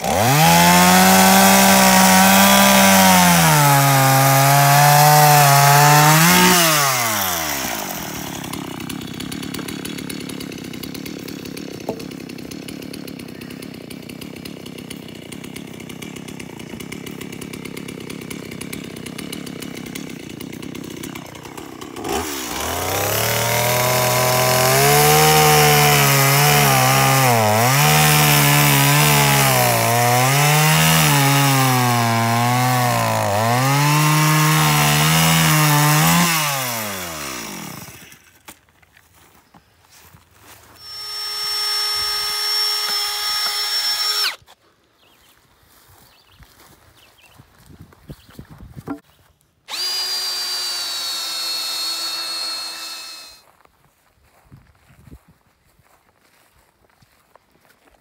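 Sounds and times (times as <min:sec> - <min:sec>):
chainsaw cutting wood: 0:00.0 - 0:38.7, 0:40.8 - 0:44.6, 0:49.7 - 0:53.5.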